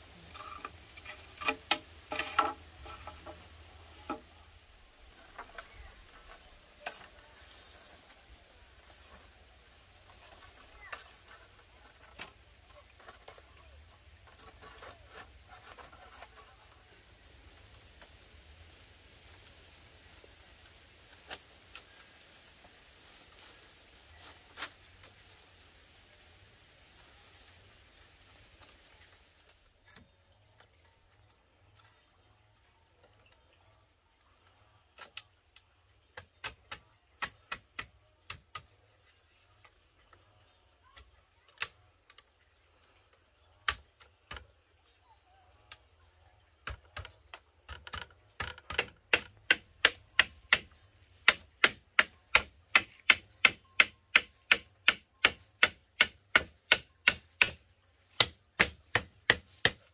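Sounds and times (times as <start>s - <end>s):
chopping wood: 36.2s - 38.7s, 43.6s - 44.5s, 46.6s - 59.9s.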